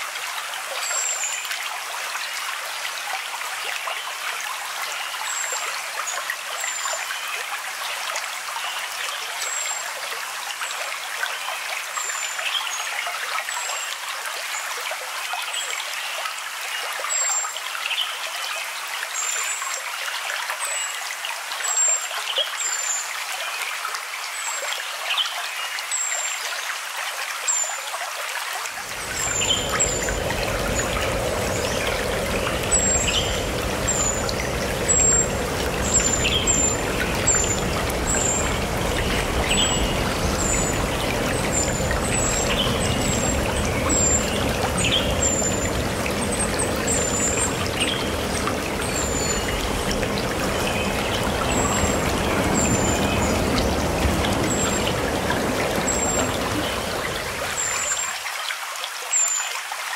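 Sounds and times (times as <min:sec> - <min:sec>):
stream water trickling: 0:00.0 - 0:59.9.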